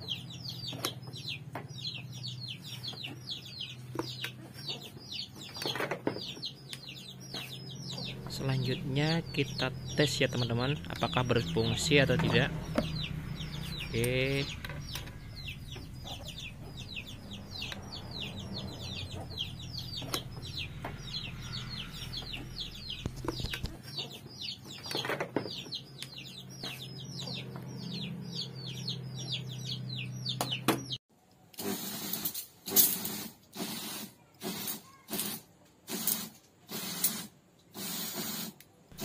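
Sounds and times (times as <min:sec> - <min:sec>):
chicks peeping: 0:00.0 - 0:31.0
steady low hum: 0:07.1 - 0:23.9.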